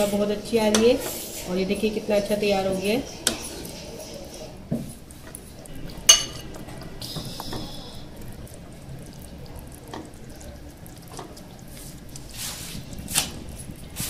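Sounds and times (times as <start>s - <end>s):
faint liquid sounds: 0.0s - 14.0s
metal ladle clinking glass bowl: 6.1s - 6.5s.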